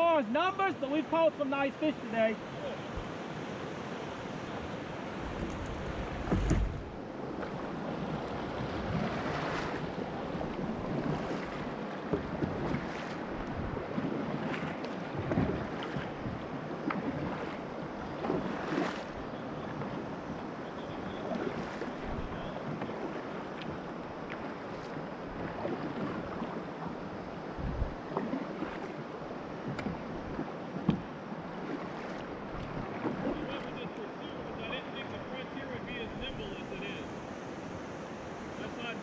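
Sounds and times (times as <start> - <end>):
paddle strokes: 0.0 - 39.0
water splashing along hull: 0.0 - 39.0
wind buffeting microphone: 2.9 - 28.9.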